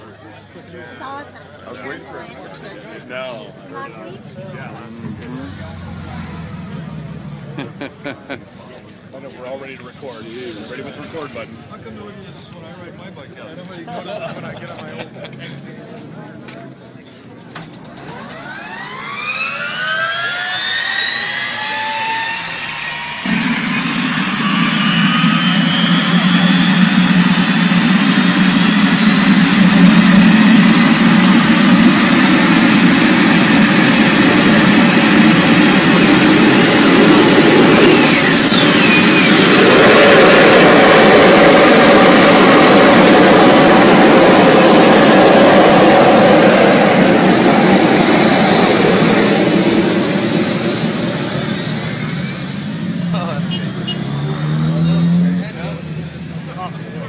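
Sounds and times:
turbine engine roar and whine: 0.0s - 57.0s
whistle sweeping down: 18.1s - 41.0s, 50.4s - 55.5s.

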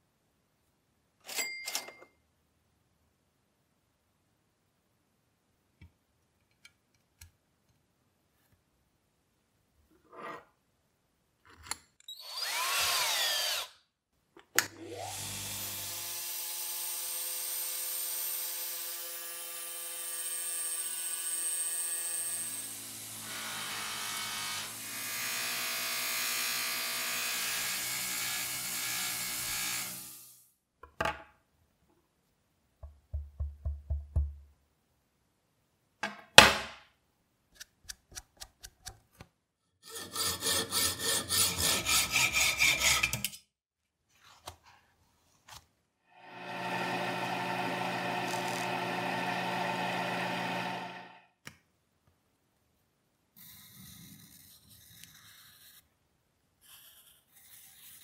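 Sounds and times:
bench buffing machine running: 46.2s - 51.2s.

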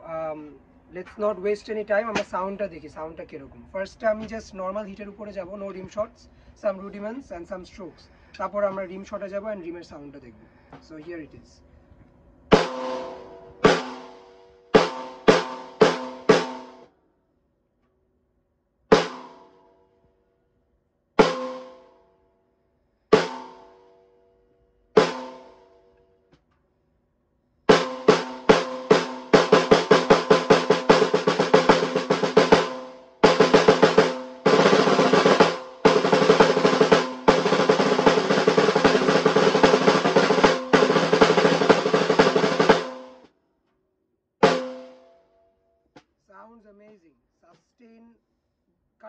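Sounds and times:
snare drum strokes and rolls: 12.5s - 16.8s, 18.9s - 19.4s, 21.2s - 21.9s, 23.1s - 23.6s, 25.0s - 25.6s, 27.7s - 43.3s, 44.4s - 45.0s.

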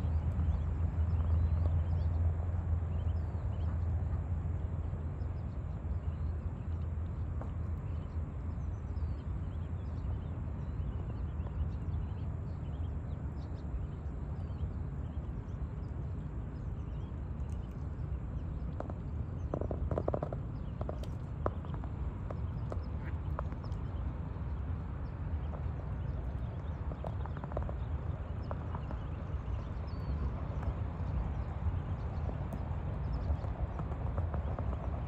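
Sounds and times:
wind rumble on microphone: 0.0s - 35.0s
ducklings peeping: 9.4s - 35.0s.

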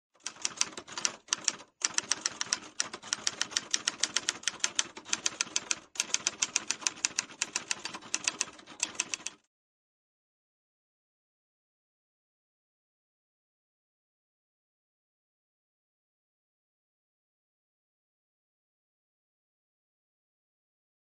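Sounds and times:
manual typewriter typing: 0.2s - 9.4s.

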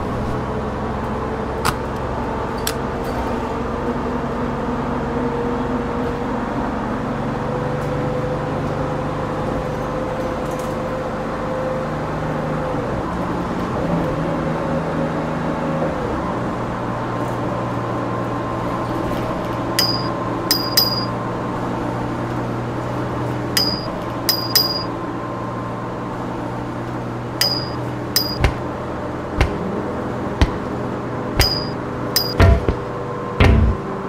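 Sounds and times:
bus engine hum: 0.0s - 34.0s
sharp metallic pings: 19.8s - 21.2s, 23.6s - 24.9s, 27.4s - 28.6s, 31.4s - 32.8s
low thuds: 27.4s - 28.7s, 29.4s - 33.9s.

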